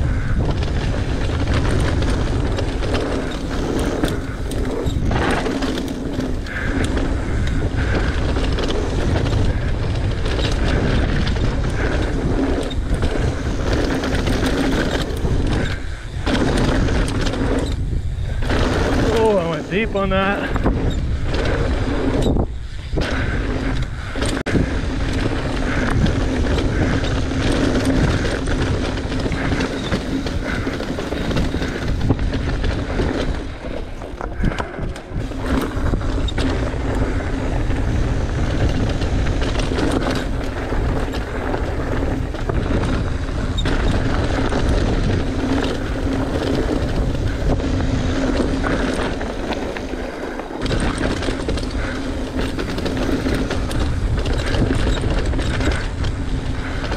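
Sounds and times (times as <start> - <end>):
bike rattling over bumps: 0.0 - 56.9
bike tyres on dirt and gravel: 0.0 - 56.9
wind noise on microphone: 0.0 - 56.9.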